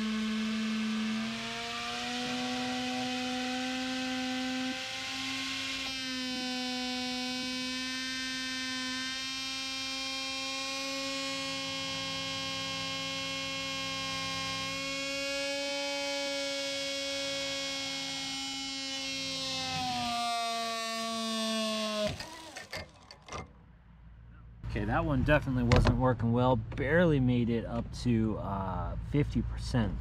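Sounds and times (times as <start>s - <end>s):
drone motor whine: 0.0s - 23.2s.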